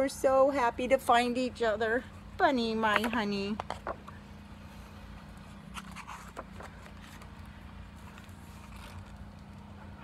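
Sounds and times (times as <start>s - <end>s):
low steady hum: 0.0s - 10.0s
book pages rustling: 5.3s - 9.6s.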